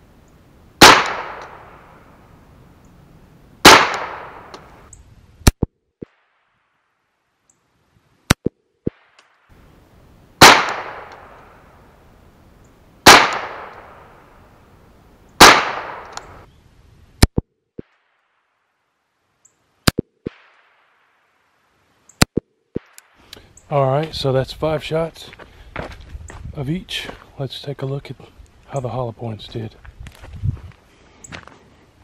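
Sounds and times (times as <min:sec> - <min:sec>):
rifle shots echoing: 0:00.8 - 0:01.8, 0:03.6 - 0:04.6, 0:10.4 - 0:11.6, 0:13.0 - 0:14.1, 0:15.4 - 0:16.4.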